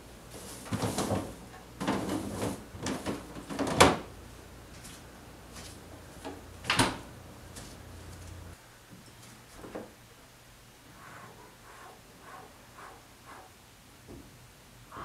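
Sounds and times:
items clattering and rustling: 0.0s - 4.1s.

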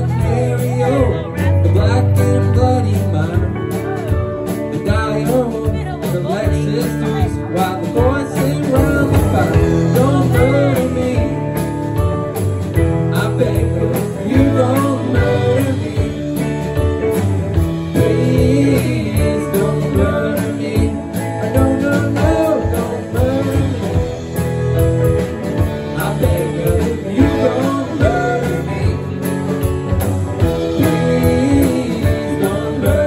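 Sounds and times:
bass guitar: 0.0s - 33.0s
drum kit: 0.0s - 33.0s
electric guitars: 0.0s - 33.0s
electric piano: 0.0s - 33.0s.

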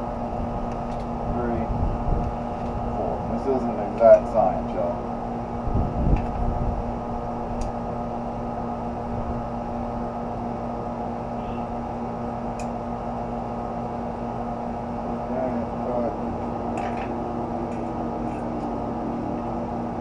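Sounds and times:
steady mechanical hum: 0.0s - 20.0s.

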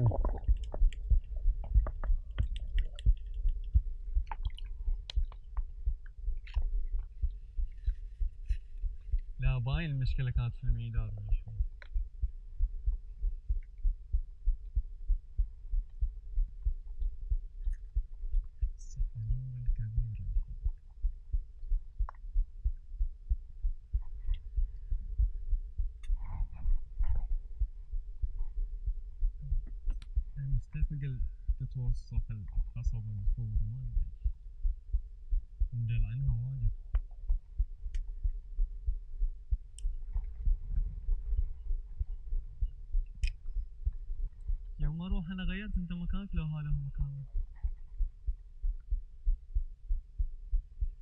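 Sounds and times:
water sloshing underwater: 0.0s - 9.4s, 10.8s - 31.6s, 36.9s - 44.8s
faint steady hum: 0.0s - 51.0s.

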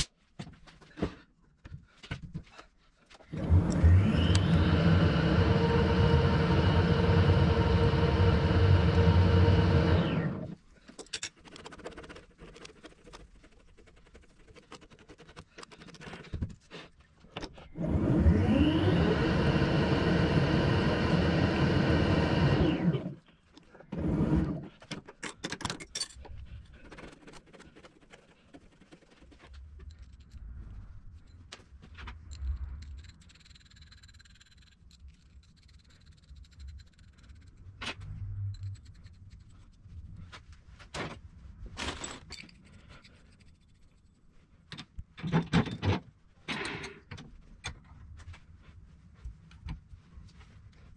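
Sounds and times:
metalworking lathe running: 3.4s - 10.5s, 17.8s - 23.1s
tools clicking and clattering: 10.8s - 11.8s, 24.8s - 27.7s, 31.2s - 39.6s, 41.8s - 47.9s.

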